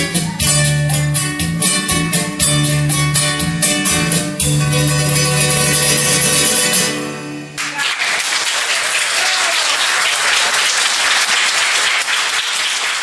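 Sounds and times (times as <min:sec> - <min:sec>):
guitar chord ringing: 0:03.8 - 0:07.6
audience applauding: 0:07.6 - 0:13.0.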